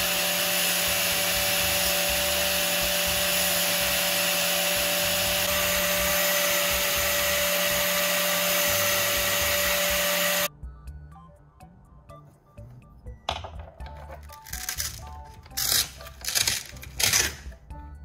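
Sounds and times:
power tool grinding: 0.0 - 10.5.

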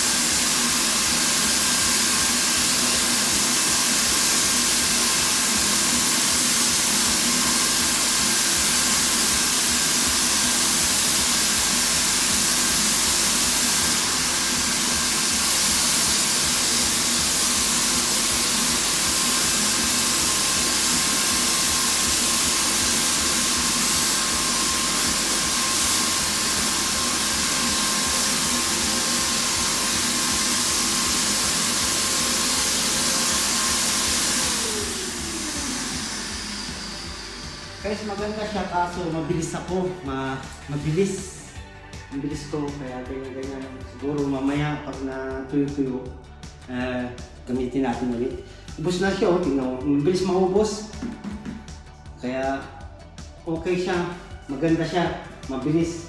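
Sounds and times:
paint spray hissing: 0.0 - 39.2
turbine humming: 0.0 - 42.5.

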